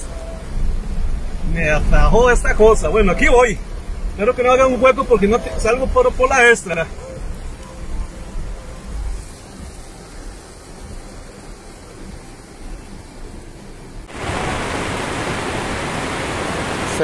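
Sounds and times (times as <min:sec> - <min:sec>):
floodwater rushing down street: 0:00.0 - 0:17.0
rain with low rumble: 0:00.0 - 0:17.0.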